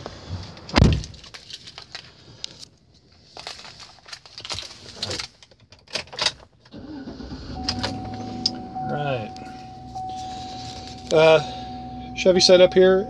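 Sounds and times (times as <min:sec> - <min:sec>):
rustling: 0:00.0 - 0:05.5, 0:09.4 - 0:11.8.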